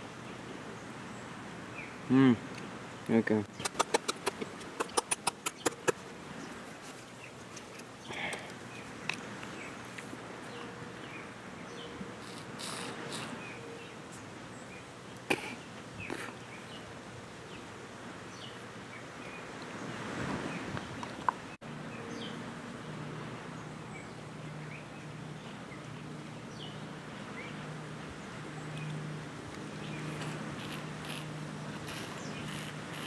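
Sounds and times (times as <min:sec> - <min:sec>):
birds: 0:00.0 - 0:33.0
insects: 0:28.2 - 0:33.0.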